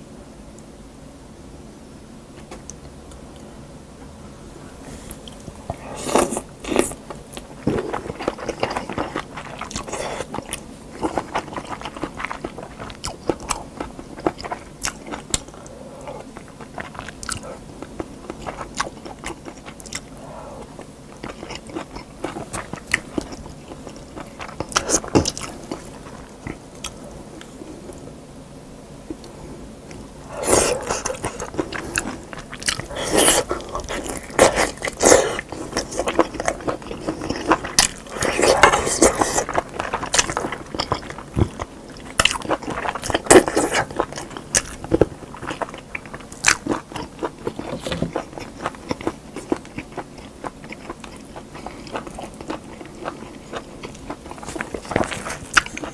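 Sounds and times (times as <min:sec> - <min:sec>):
person biting and chewing meat: 0:29.9 - 0:55.9.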